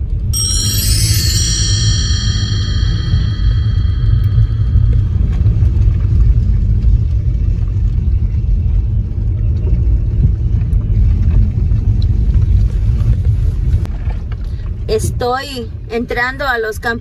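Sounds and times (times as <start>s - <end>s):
car engine and road noise: 5.6s - 16.3s.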